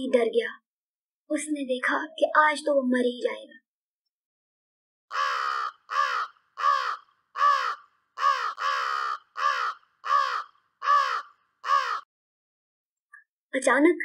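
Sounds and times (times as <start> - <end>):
crow cawing: 5.1 - 12.1.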